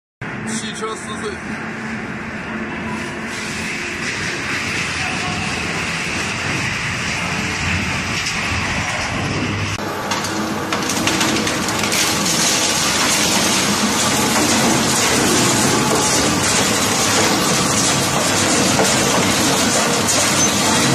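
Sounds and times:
shredder machinery drone: 0:00.2 - 0:20.9
material grinding and tearing: 0:10.0 - 0:20.9.

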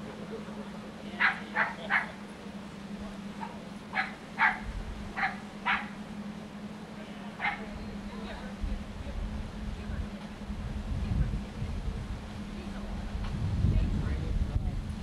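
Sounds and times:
steady low hum: 0:00.0 - 0:15.0
sharp animal barks: 0:01.2 - 0:02.2, 0:03.4 - 0:06.0, 0:07.4 - 0:07.7.

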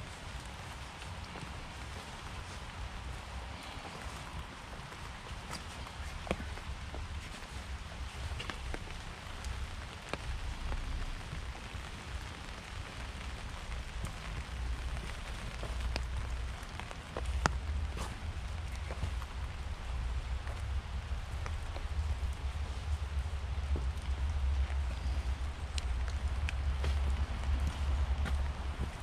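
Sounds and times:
rain hissing: 0:00.0 - 0:29.0
raindrop clicks: 0:00.0 - 0:29.0
steady low rumble: 0:00.0 - 0:29.0.

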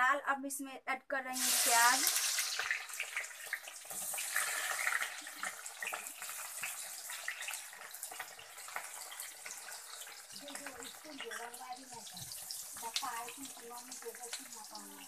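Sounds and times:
onions sizzling in hot oil: 0:01.3 - 0:15.0.

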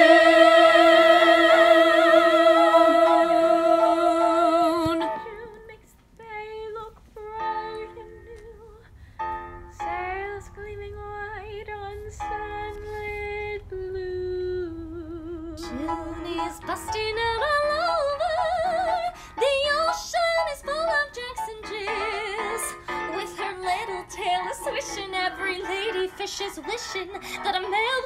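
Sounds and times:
women singing in ensemble: 0:00.0 - 0:08.6.

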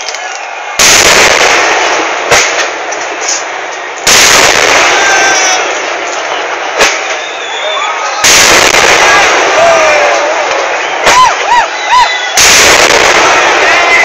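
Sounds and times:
heavy firework blasts: 0:00.0 - 0:14.0
sharp firework bang: 0:04.1 - 0:05.8, 0:08.2 - 0:10.1, 0:12.4 - 0:14.0.

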